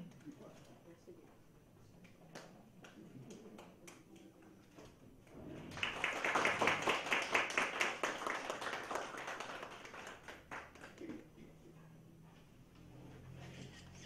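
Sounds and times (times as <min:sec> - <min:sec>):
audience applauding: 0:05.7 - 0:11.2.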